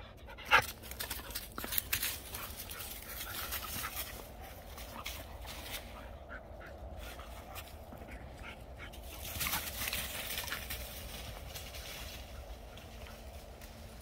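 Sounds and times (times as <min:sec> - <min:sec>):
dogs running over dry leaves: 0:00.6 - 0:06.1, 0:09.0 - 0:14.0.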